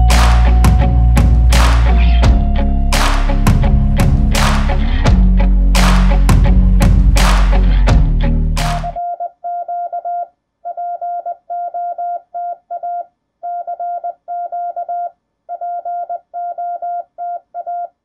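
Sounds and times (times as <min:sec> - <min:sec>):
morse code beeps: 0:09.0 - 0:17.9.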